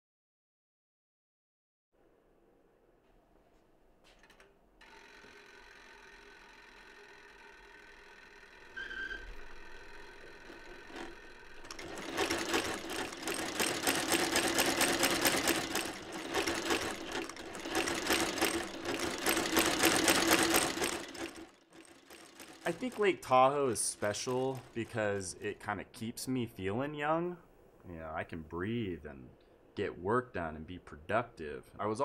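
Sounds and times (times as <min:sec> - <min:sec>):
sewing machine running fast: 0:04.8 - 0:25.2.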